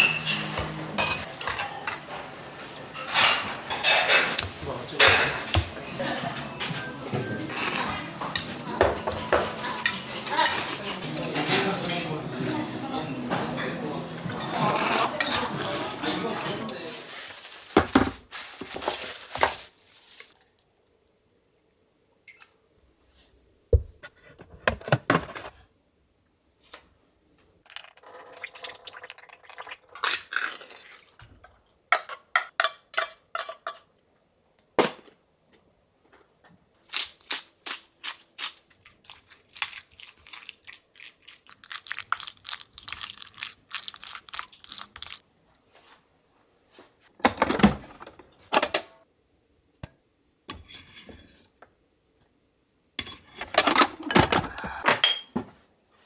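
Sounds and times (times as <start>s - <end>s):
dishes clattering: 0.0s - 4.4s, 5.0s - 12.1s, 53.0s - 55.5s
cans and packages knocking: 17.7s - 18.8s.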